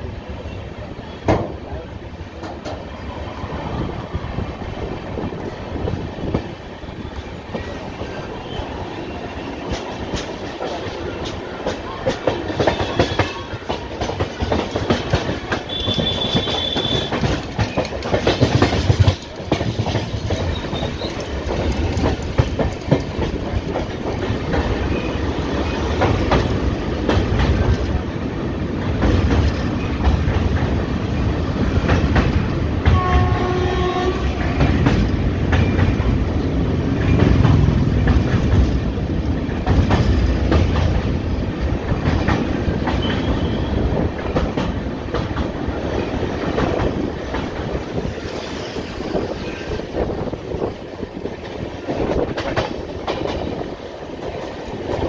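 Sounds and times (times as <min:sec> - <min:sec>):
train rumbling: 0:00.0 - 0:55.0
wheels clicking over rail joints: 0:09.6 - 0:28.1
train horn: 0:15.6 - 0:17.3, 0:32.9 - 0:34.8.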